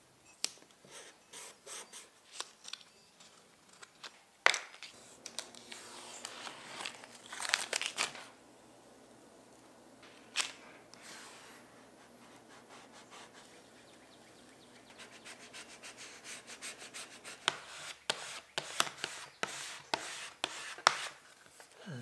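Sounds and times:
squeegee strokes: 10.3 - 14.0
sharp scrapes and taps: 17.3 - 21.2.

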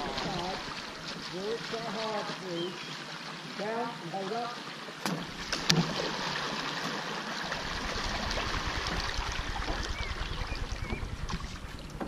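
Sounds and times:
water rushing and splashing: 0.0 - 12.0
deep low rumble: 7.5 - 12.0.

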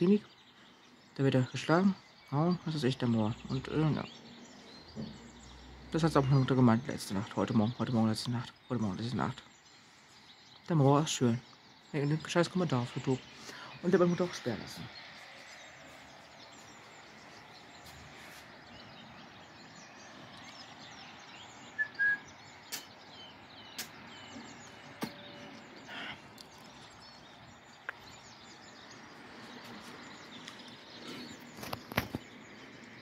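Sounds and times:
birds chirping: 0.0 - 33.0
sharp clicks: 22.7 - 23.0, 23.8 - 24.0.

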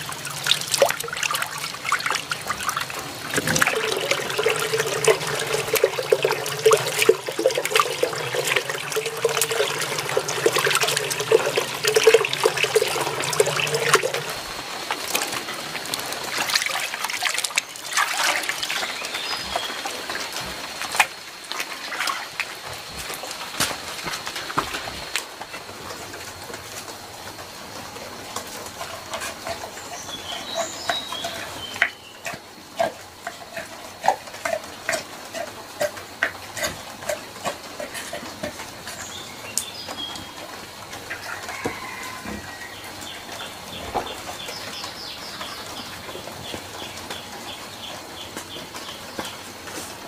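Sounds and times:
birds chirping: 0.0 - 14.5.

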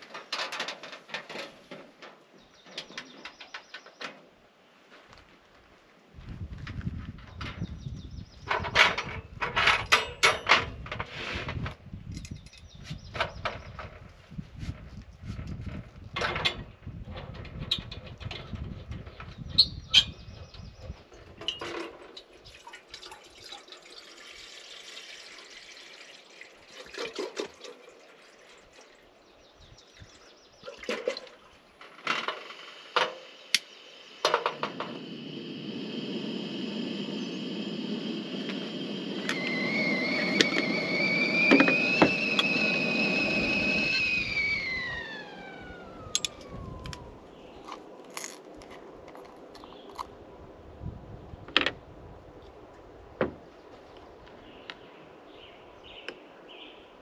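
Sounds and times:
gas burner hissing: 32.1 - 48.5
kettle whistling: 32.2 - 48.3.

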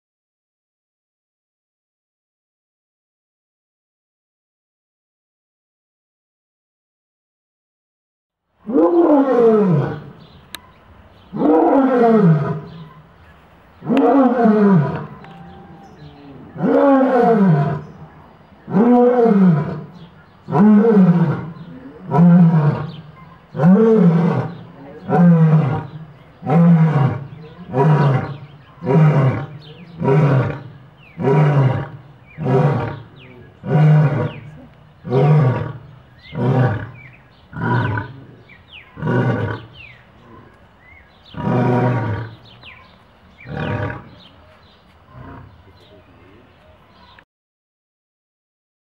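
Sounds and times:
lion roaring: 8.6 - 10.3, 11.3 - 13.0, 13.8 - 40.6, 41.3 - 42.6, 43.4 - 44.3, 45.1 - 45.9
lion grunts: 23.6 - 40.6.

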